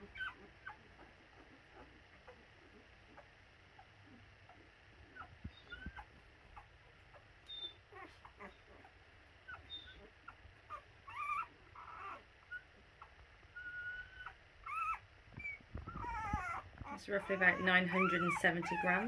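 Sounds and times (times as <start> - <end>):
puppy squeaking and whimpering: 0.0 - 19.0
puppy whining: 0.0 - 19.0.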